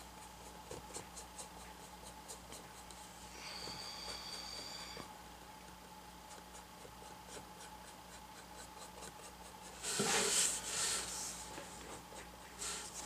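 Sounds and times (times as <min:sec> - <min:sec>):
brush scrubbing paint on board: 0:06.3 - 0:13.0
board scraping rustle: 0:09.8 - 0:11.9.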